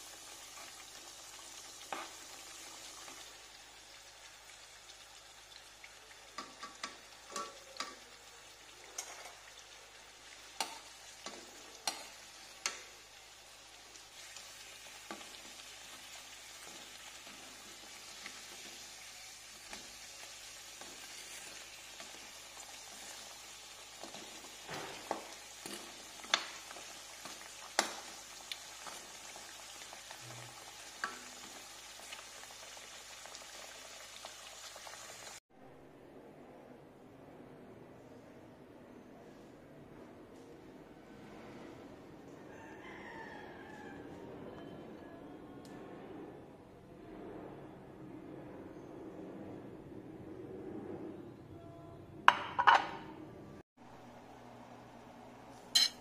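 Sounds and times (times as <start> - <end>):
potato slices sizzling in oil: 0.0 - 35.4.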